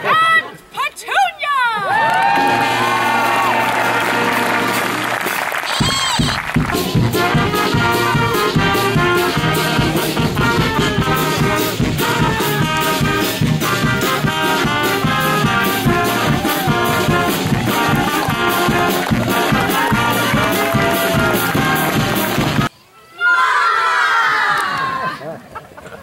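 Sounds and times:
brass band playing: 2.4s - 22.7s
steady drum beat: 2.4s - 22.7s.

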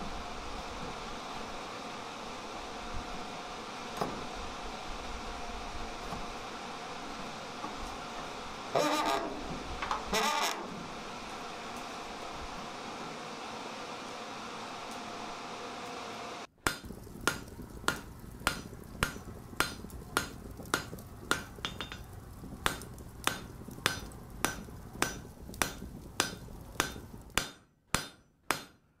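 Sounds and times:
steady hum: 0.0s - 28.2s
hammer striking anvil: 16.6s - 22.1s, 22.7s - 28.8s.

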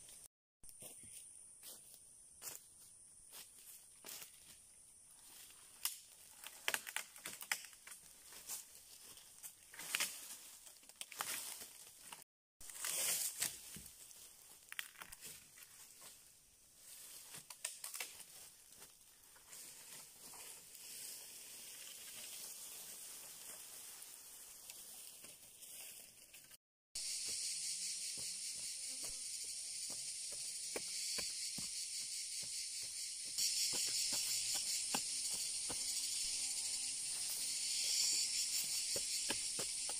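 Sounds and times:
dry wood crackling and snapping: 5.8s - 8.0s.

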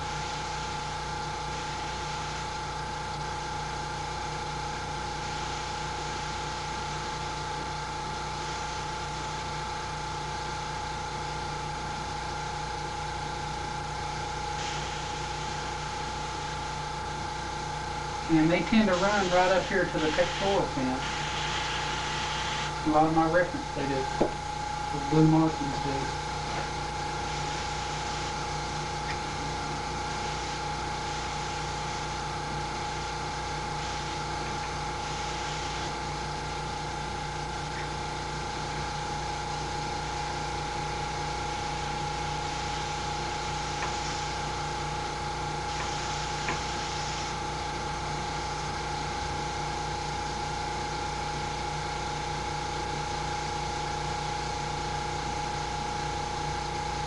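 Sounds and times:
airbrush spray hiss: 0.0s - 2.6s, 5.0s - 7.4s, 8.3s - 9.4s, 14.4s - 16.8s, 18.3s - 24.2s, 25.0s - 36.6s, 41.6s - 48.8s
air compressor humming: 0.0s - 57.0s.

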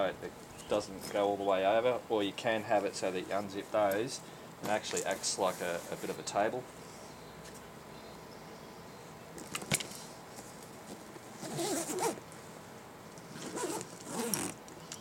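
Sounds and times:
zipper rasping shut: 11.4s - 12.2s, 13.3s - 14.6s.

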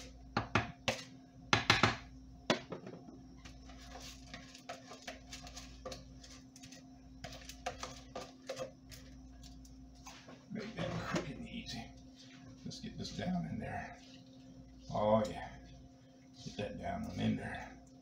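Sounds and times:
spoon knocking on plastic bowl: 0.4s - 3.1s.

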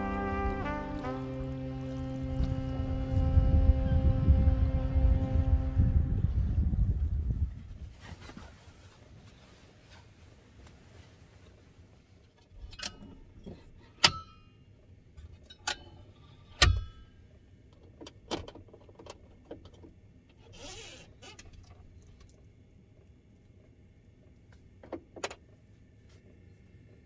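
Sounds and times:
brief rustle: 7.8s - 11.8s.

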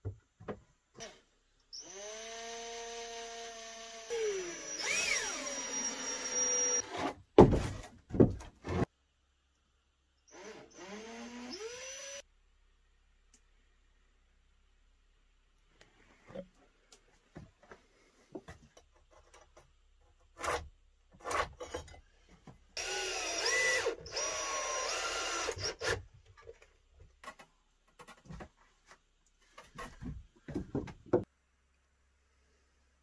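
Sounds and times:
cordless drill drilling into wood: 1.8s - 6.9s, 10.3s - 12.2s, 22.8s - 26.0s
boards knocking and clattering: 7.4s - 8.8s, 29.8s - 31.3s.

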